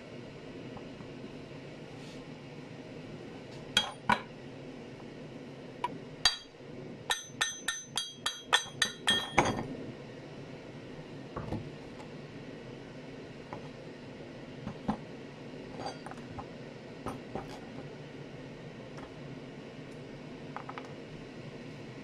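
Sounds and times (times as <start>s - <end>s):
ringing metal taps on hatchet head: 7.1s - 9.4s.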